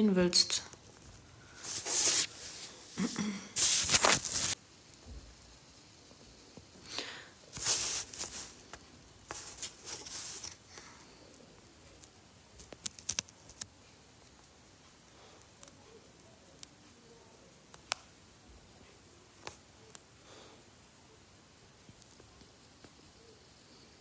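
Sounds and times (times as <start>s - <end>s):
rustling and scraping: 0.8s - 4.6s, 7.5s - 10.9s.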